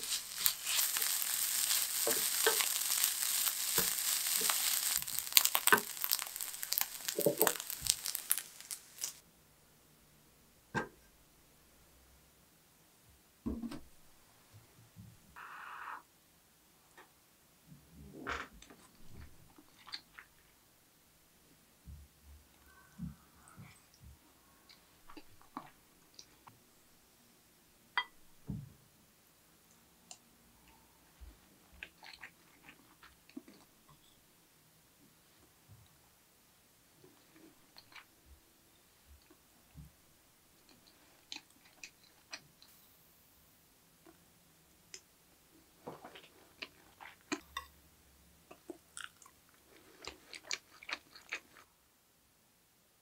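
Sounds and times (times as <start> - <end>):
soft chewing: 0.0 - 9.2, 18.6 - 20.5, 29.6 - 34.2, 37.0 - 38.1, 40.5 - 42.8, 45.8 - 47.8, 48.4 - 51.7.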